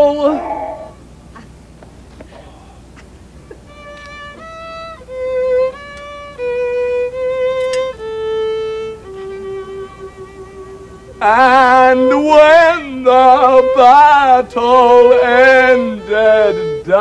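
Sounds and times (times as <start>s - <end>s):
solo fiddle playing slow tune: 3.5s - 17.0s.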